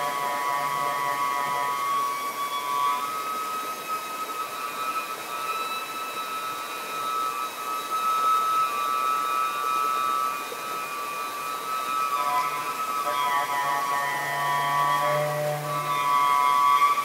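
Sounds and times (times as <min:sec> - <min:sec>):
stream rapids rushing: 0:00.0 - 0:17.0
saxophone long high note: 0:12.0 - 0:17.0.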